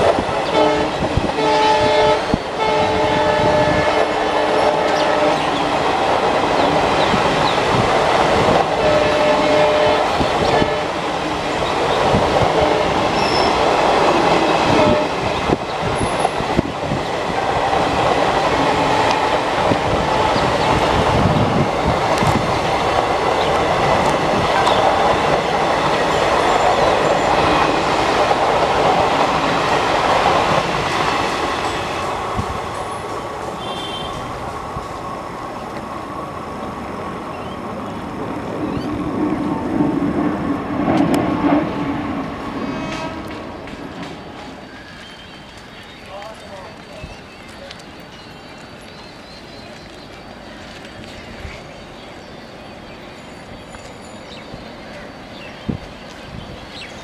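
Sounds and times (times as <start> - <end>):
train wheels rumbling and clattering: 0.0 - 57.0
multi-tone train horn: 0.4 - 5.7, 8.6 - 11.0, 12.4 - 15.4, 18.5 - 21.3, 33.5 - 34.4, 42.6 - 43.5.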